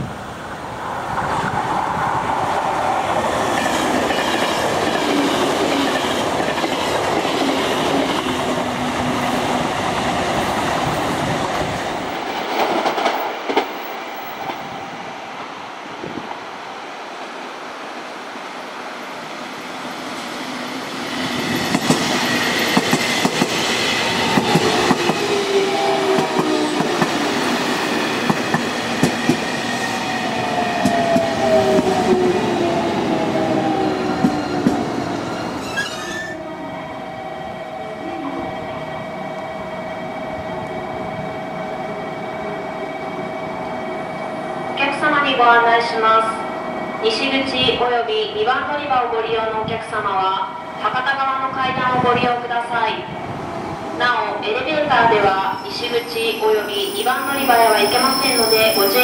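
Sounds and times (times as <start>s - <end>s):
train wheels rushing on rail: 0.0s - 36.4s, 50.7s - 59.0s.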